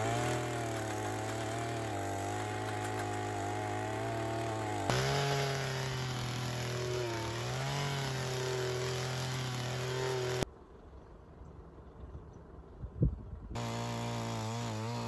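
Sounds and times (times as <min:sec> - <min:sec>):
earth auger engine drilling: 0:00.0 - 0:10.4, 0:13.6 - 0:15.0.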